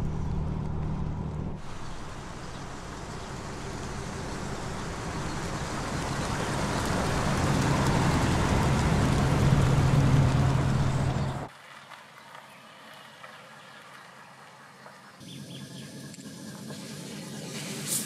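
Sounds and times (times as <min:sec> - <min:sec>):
car engine hum: 0:00.0 - 0:11.5
tyres hissing on road: 0:01.6 - 0:15.2, 0:15.8 - 0:18.0.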